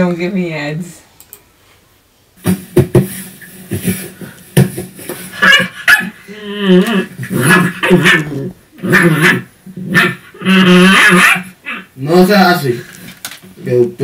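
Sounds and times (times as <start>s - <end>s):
recorded dog barks and yips: 5.4s - 6.2s, 10.9s - 11.9s.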